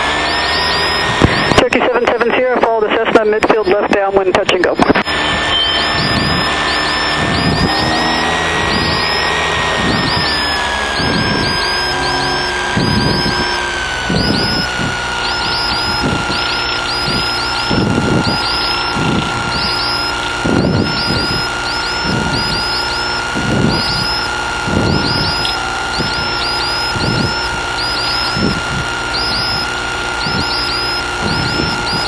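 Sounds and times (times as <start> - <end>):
aircraft engine through intercom: 1.1 - 13.6, 24.7 - 28.6.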